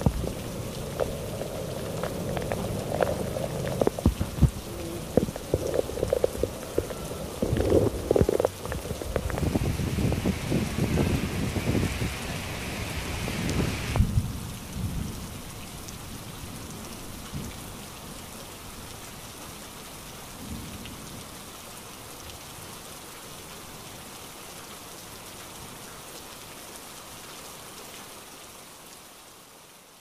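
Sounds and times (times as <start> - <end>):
low rumbles: 0.0 - 14.0
steady rain falling: 0.0 - 30.0.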